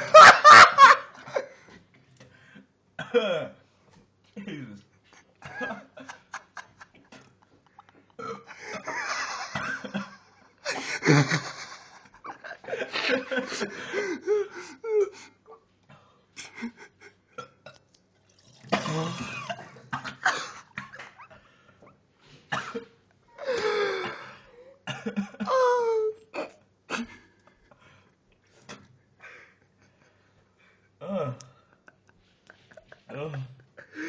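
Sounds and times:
man retching and heaving: 8.0 - 8.6, 17.3 - 21.3
groans: 31.0 - 31.6.

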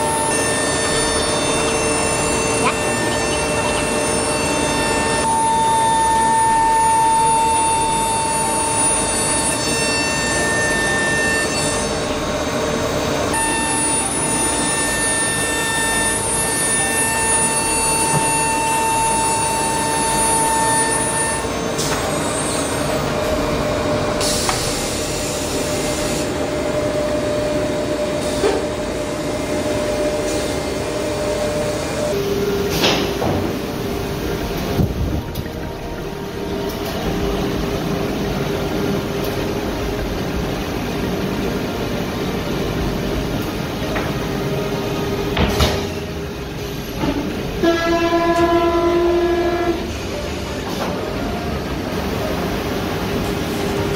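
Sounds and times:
router spindle high whine: 0.0 - 24.1
machine noise: 0.0 - 53.9.

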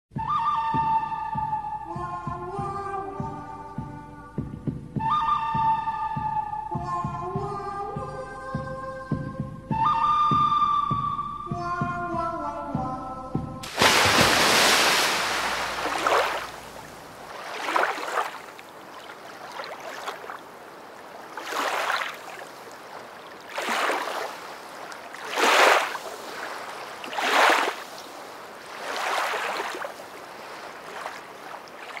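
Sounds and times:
big splash into pool: 13.6 - 18.6
swimming stroke splashes: 13.6 - 32.0.

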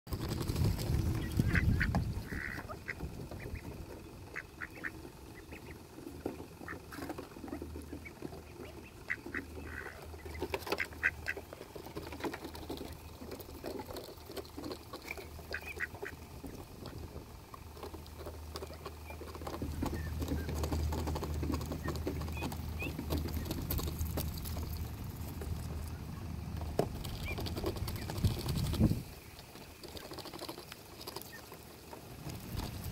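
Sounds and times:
duck bills clicking and pecking: 0.1 - 32.9
low steady rumble: 0.1 - 32.9
ducks quacking: 0.9 - 24.8.

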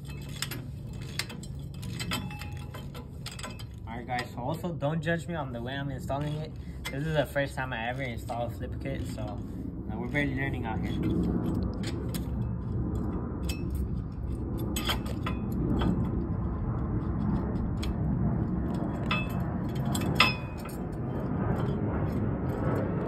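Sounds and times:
hand tools clinking on metal: 0.0 - 4.8
low rumble: 0.0 - 23.0.

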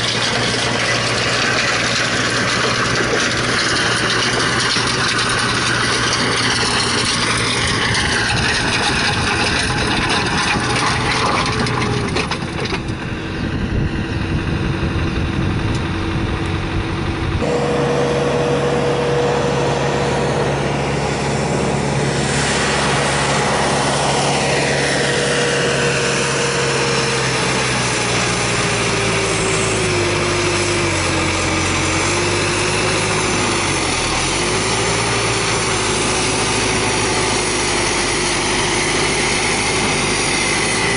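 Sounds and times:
stone crusher churning: 0.0 - 13.0
tractor engine running: 0.0 - 40.9.

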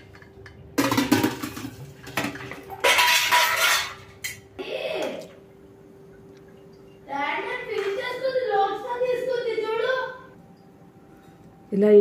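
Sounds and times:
steel plates clattering and scraping: 0.0 - 4.4.

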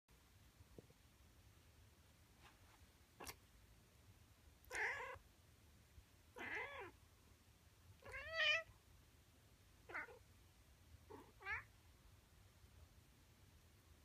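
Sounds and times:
cat meowing: 4.7 - 5.2, 6.4 - 7.0, 8.0 - 8.7, 9.9 - 10.2, 11.1 - 11.7.

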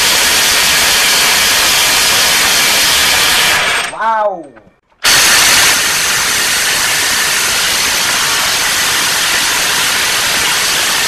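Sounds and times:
impact wrench hammering: 5.0 - 11.0.

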